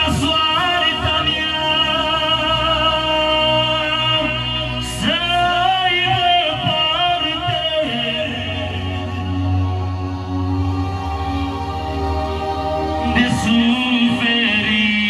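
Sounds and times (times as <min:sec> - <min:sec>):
man singing into a microphone: 0:00.0 - 0:10.0, 0:13.0 - 0:15.0
backing track: 0:00.0 - 0:15.0.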